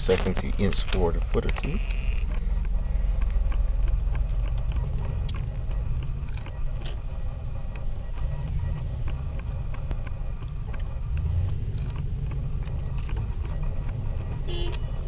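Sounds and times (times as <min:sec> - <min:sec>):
car engine rumble: 0:00.0 - 0:15.0
road noise inside car: 0:00.0 - 0:15.0
small clicks: 0:07.7 - 0:15.0.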